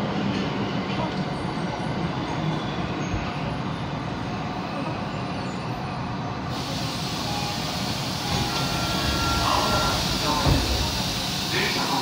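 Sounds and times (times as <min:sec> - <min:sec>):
subway train running rumble: 0:00.0 - 0:12.0
steady hiss of air: 0:06.5 - 0:12.0.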